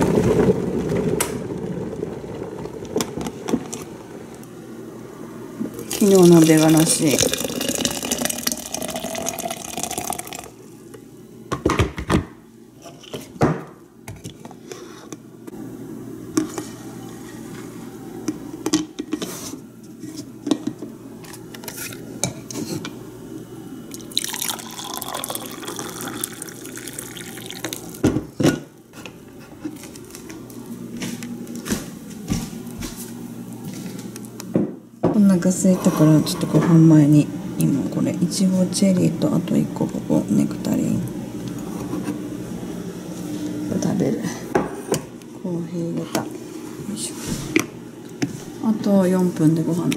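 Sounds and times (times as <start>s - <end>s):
coffee pouring into mug: 5.8s - 10.6s, 23.9s - 28.0s
hot water pouring into glass: 5.8s - 10.6s, 23.9s - 28.0s.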